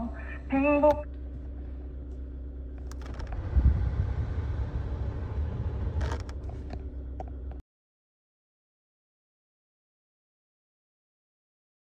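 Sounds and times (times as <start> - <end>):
car engine idling hum: 0.0 - 7.6
air rushing from vents: 3.0 - 6.8.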